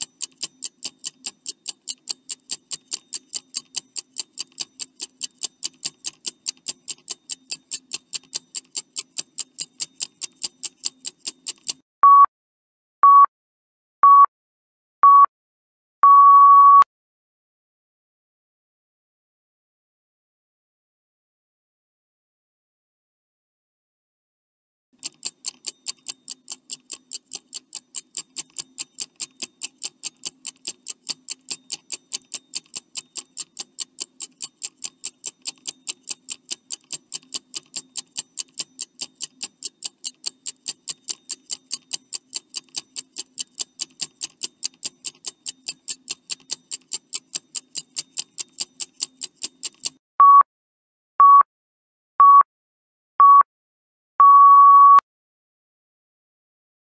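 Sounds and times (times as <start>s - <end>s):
clock ticking: 0.0s - 11.8s, 25.0s - 50.0s
short electronic beeps: 12.0s - 12.3s, 13.0s - 13.3s, 14.0s - 14.3s, 15.0s - 15.3s, 16.0s - 16.9s, 50.2s - 50.5s, 51.2s - 51.5s, 52.2s - 52.5s, 53.2s - 53.5s, 54.2s - 55.0s.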